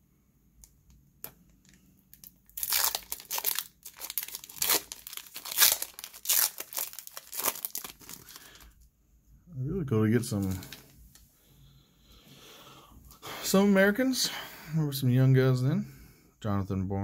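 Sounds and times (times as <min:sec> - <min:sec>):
foil wrapper tearing and crinkling: 0:02.1 - 0:08.7.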